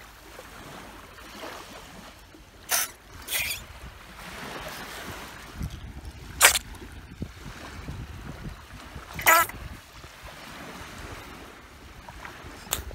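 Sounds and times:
faint surf: 0:00.0 - 0:12.9
wind rumbling on microphone: 0:02.9 - 0:12.9.

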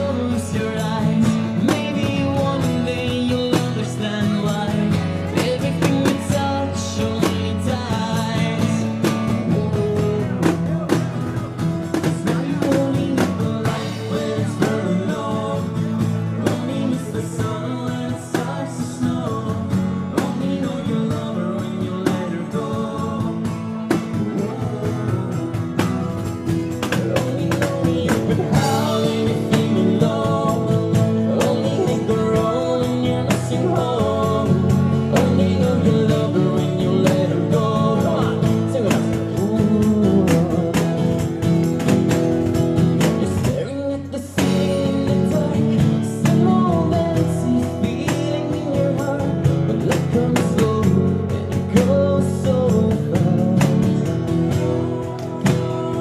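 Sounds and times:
acoustic guitar: 0:00.0 - 0:56.0
person singing: 0:26.5 - 0:41.4, 0:43.1 - 0:56.0.

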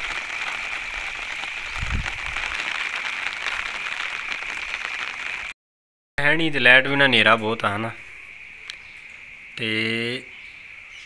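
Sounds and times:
light rain pattering: 0:00.0 - 0:05.6.

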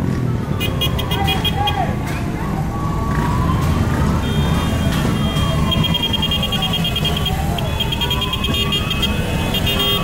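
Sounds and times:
motorcycles idling: 0:00.1 - 0:10.0
siren wailing: 0:02.5 - 0:10.0.

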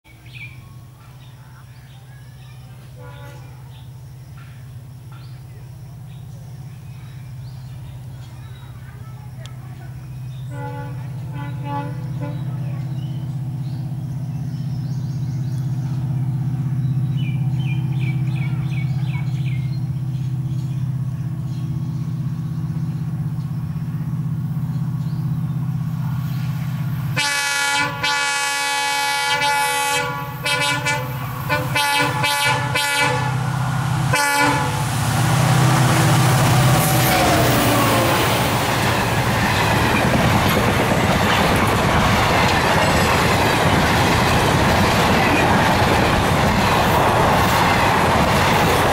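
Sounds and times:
birds chirping: 0:00.1 - 0:26.9, 0:30.4 - 0:48.9
diesel locomotive engine drone: 0:00.1 - 0:48.9
locomotive air horn blasts: 0:10.5 - 0:12.5, 0:27.1 - 0:35.1.

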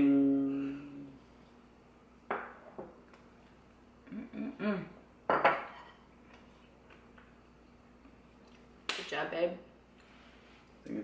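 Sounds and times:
person murmuring: 0:00.0 - 0:01.2, 0:04.0 - 0:04.9
ceramic mugs clinking: 0:05.3 - 0:06.0.

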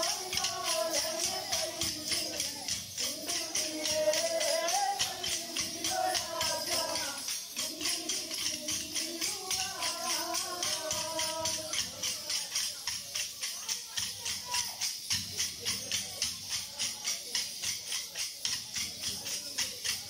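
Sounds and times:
people singing: 0:00.0 - 0:14.6.

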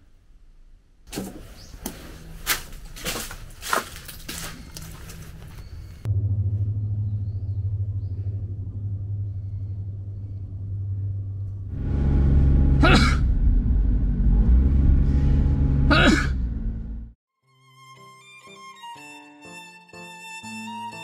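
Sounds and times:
car engine and tyre noise: 0:01.1 - 0:17.2.

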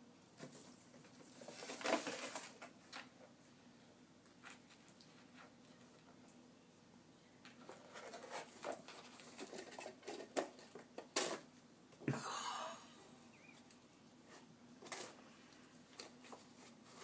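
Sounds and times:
cardboard scraping rustle: 0:00.4 - 0:02.7.

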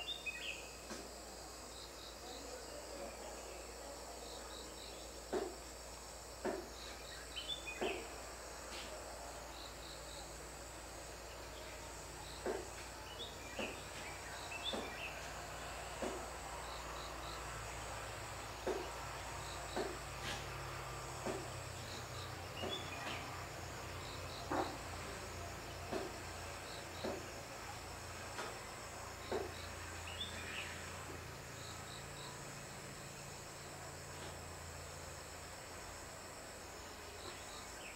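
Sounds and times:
crickets chirping: 0:00.0 - 0:37.9
short dull knocks: 0:16.0 - 0:16.3, 0:18.6 - 0:19.0.

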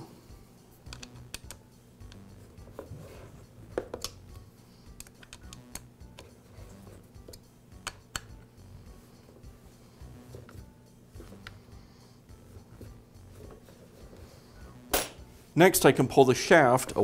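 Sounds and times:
hex key clicking and tapping: 0:00.9 - 0:02.2, 0:05.0 - 0:06.3.

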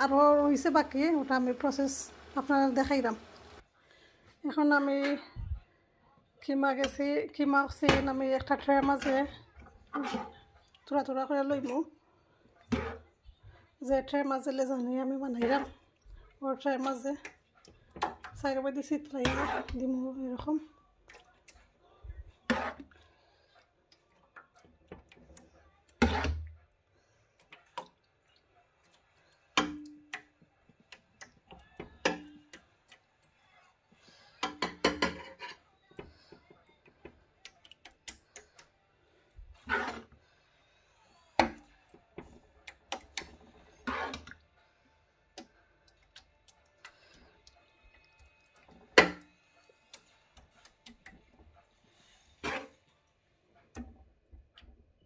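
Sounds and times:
metal spoon scraping a metal tray: 0:08.7 - 0:10.4, 0:19.1 - 0:19.9, 0:22.5 - 0:23.0, 0:34.6 - 0:35.7, 0:39.6 - 0:40.2, 0:43.2 - 0:44.4, 0:52.0 - 0:52.9.

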